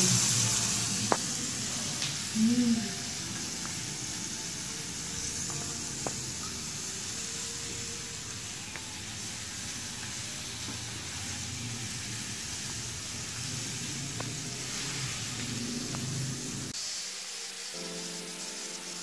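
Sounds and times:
onions sizzling in a frying pan: 0.0s - 19.0s.

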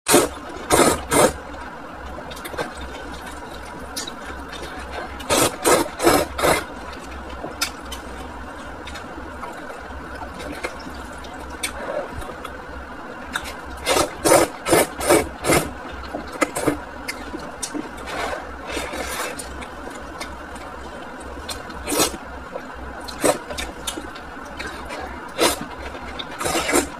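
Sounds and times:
person slurping noodles: 0.1s - 1.4s, 5.0s - 6.7s, 13.8s - 15.8s, 18.0s - 19.4s, 21.8s - 22.2s, 24.6s - 26.9s.

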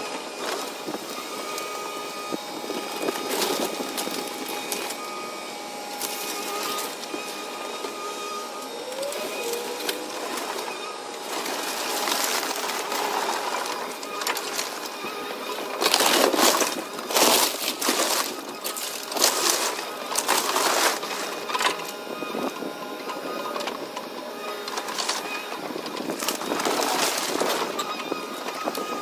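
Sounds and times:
excavator engine running: 0.0s - 29.0s
wood cracking and crashing: 9.2s - 21.9s, 24.8s - 27.9s.

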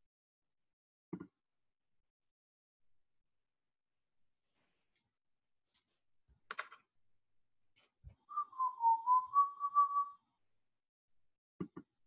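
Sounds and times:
person whistling: 8.3s - 10.2s.

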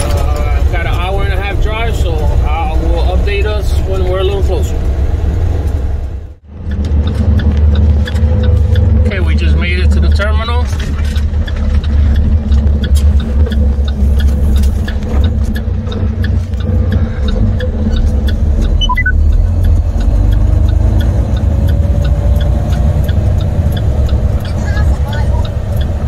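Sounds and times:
diesel truck engine drone: 0.0s - 26.0s
light regular ticking: 6.4s - 26.0s
high chirps: 18.7s - 19.2s
faint rising tone: 18.8s - 19.2s.

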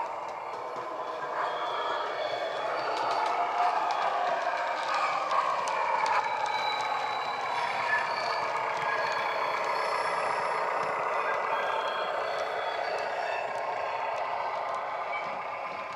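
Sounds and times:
diesel engine sound through small speaker: 0.0s - 15.9s
faint clicks of model on track: 2.1s - 11.4s.

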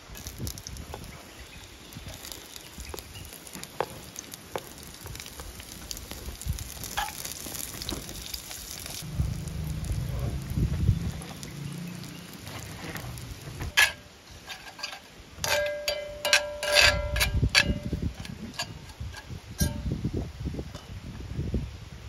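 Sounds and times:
low rumble: 8.9s - 13.8s.

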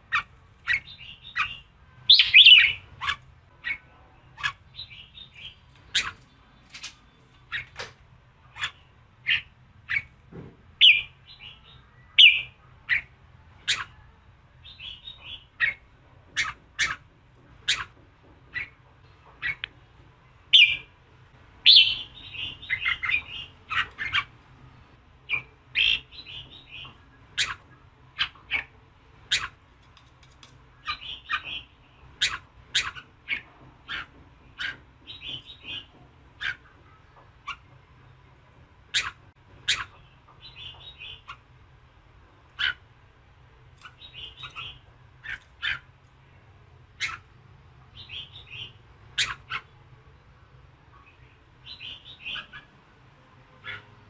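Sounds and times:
bulbul chirping: 0.1s - 3.8s, 21.7s - 24.3s.

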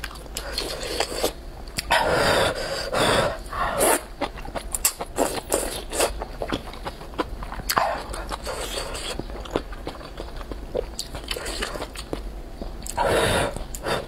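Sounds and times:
wet chewing: 3.6s - 14.0s.

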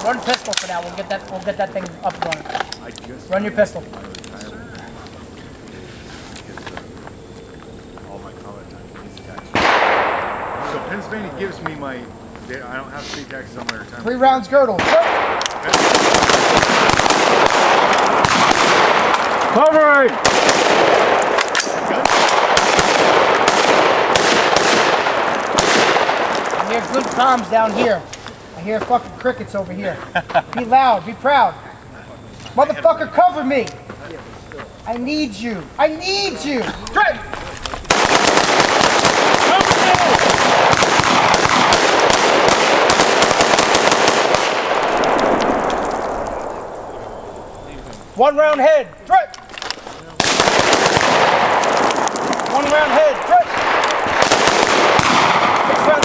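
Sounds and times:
rifle shots: 9.5s - 11.4s, 14.8s - 27.4s, 37.9s - 47.0s, 50.2s - 56.0s.

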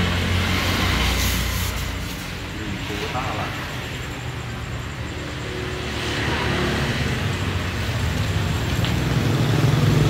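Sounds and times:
road traffic rumble: 0.0s - 10.0s
vehicle approaching: 0.0s - 10.0s.

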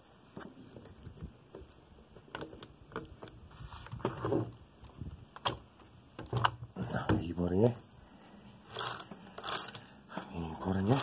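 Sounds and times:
saw chain clinking and rattling: 8.7s - 10.0s.

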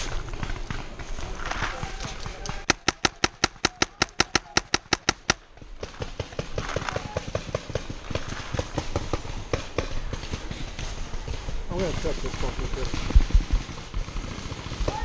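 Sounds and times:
paintball marker firing rapidly: 0.0s - 15.0s.

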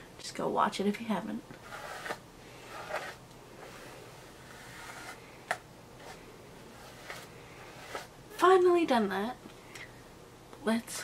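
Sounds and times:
hairbrush brushing hair: 1.6s - 8.2s.

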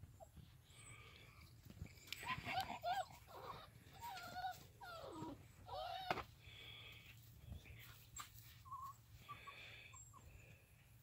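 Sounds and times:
puppies yipping and whining: 1.9s - 6.3s, 8.1s - 10.5s.

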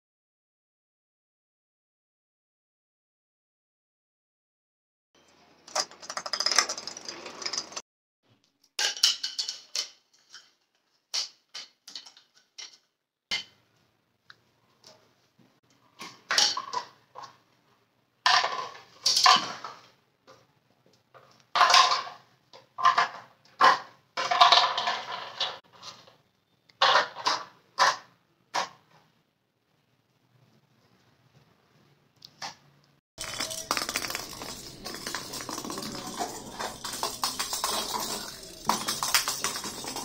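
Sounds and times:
plastic toys clattering on floor: 5.7s - 7.8s, 8.8s - 13.4s, 18.3s - 20.4s, 21.1s - 26.2s, 26.8s - 28.8s, 33.2s - 40.0s.

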